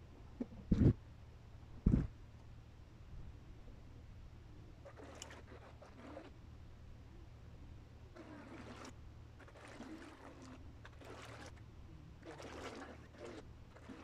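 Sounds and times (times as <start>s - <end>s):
low steady rumble: 5.6s - 14.0s.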